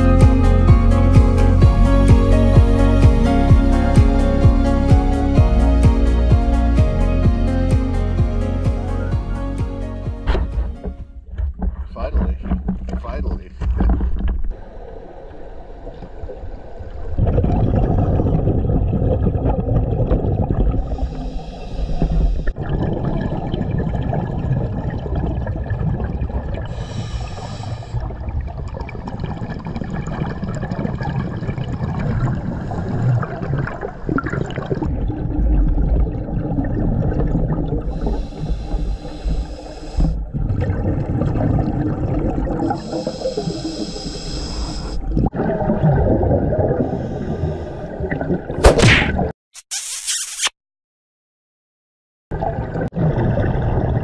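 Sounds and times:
underwater gurgling rumble: 10.3 - 48.6, 52.3 - 54.0
exhaled bubbles rushing: 13.7 - 27.1, 27.8 - 39.2, 40.0 - 43.8, 45.0 - 49.3, 52.3 - 54.0.

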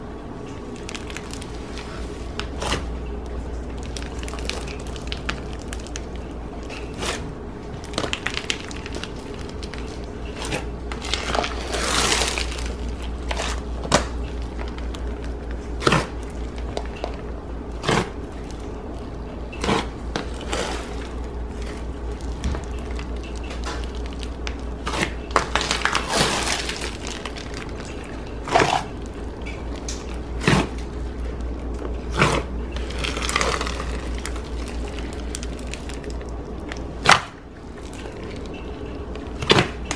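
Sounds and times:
slime beads crackling and popping: 0.5 - 39.9.

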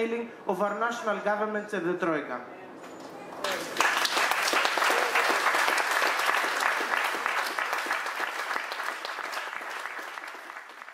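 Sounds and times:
audience applauding: 3.4 - 10.9.

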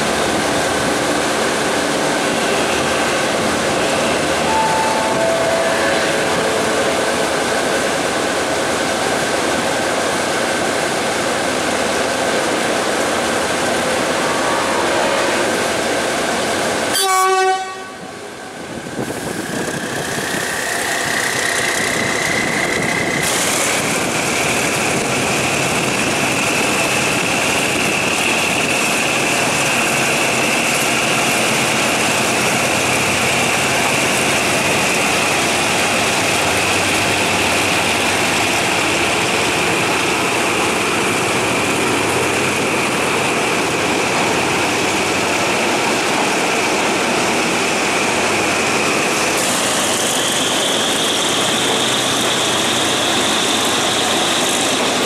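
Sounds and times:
diesel locomotive engine hum: 0.0 - 55.0
high whine: 2.3 - 9.8.

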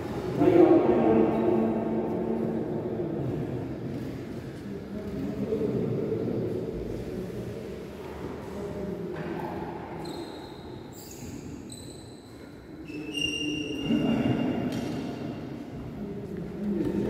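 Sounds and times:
shoes squeaking on court floor: 10.0 - 15.2.

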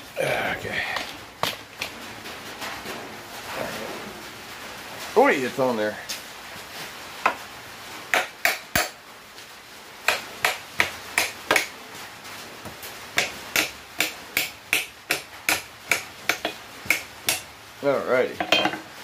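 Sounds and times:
hammer tapping steel on anvil: 18.4 - 18.8.

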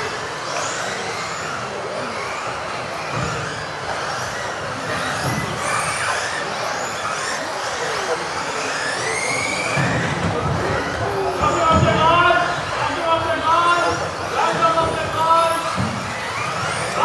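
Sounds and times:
rc car motors whining: 0.0 - 17.0.

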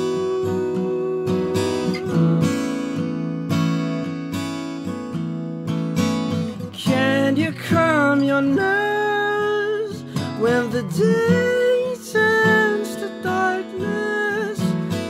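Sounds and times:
man singing: 0.0 - 2.5, 6.7 - 15.0
acoustic guitar strumming: 0.0 - 15.0.

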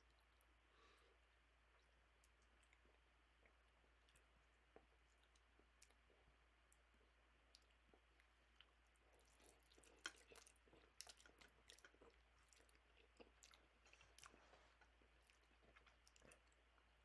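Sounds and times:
person chewing and slurping noodles: 7.6 - 16.9.

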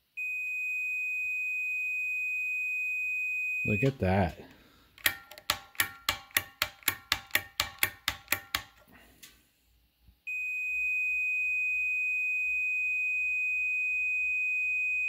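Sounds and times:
multimeter continuity beep: 0.2 - 4.3, 10.3 - 15.0
sharp ringing clicks: 5.0 - 8.8.

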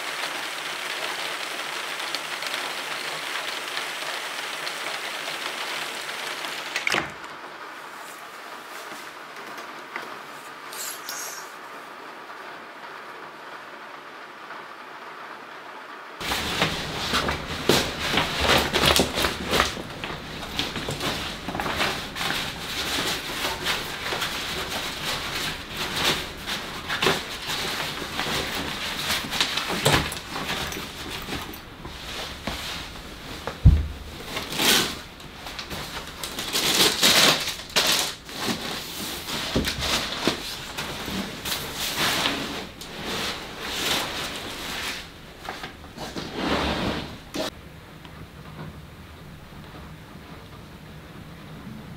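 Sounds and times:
nylon backpack rustling: 16.2 - 47.6
heavy thump: 33.6 - 34.2.

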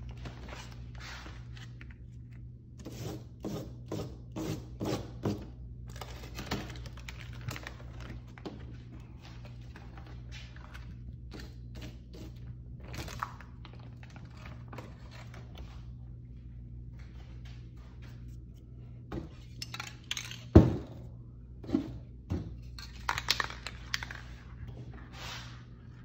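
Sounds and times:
paper rustling and crinkling: 5.9 - 11.6.

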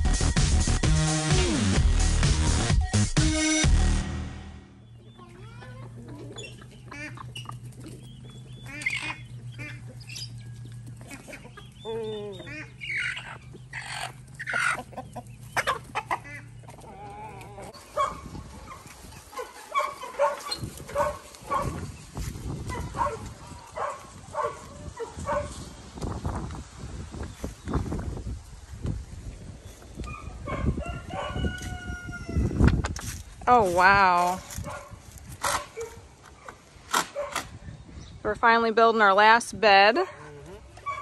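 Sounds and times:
chickens clucking: 4.8 - 26.2.

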